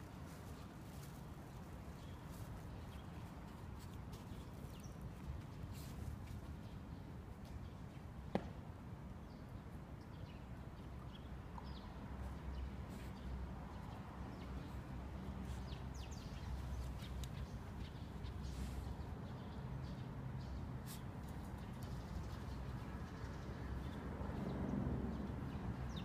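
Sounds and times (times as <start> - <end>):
puppy pawing at sand: 0.1 - 6.6.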